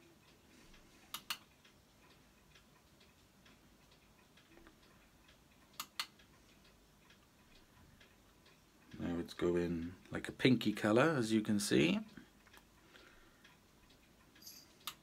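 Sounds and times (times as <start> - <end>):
sharp clicks: 1.1 - 9.1, 13.4 - 15.0.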